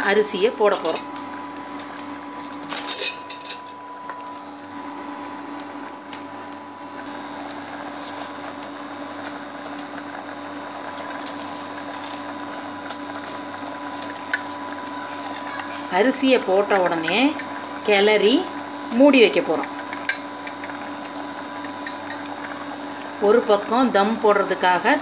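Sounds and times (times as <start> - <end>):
steady hum: 0.0 - 25.0
liquid bubbling with small pops: 7.4 - 15.7, 16.6 - 17.9, 19.6 - 23.2.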